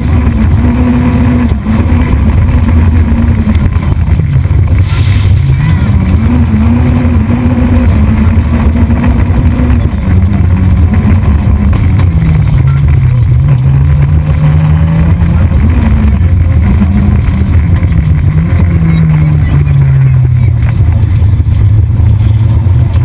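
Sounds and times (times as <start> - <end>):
car engine revving: 0.0 - 23.0.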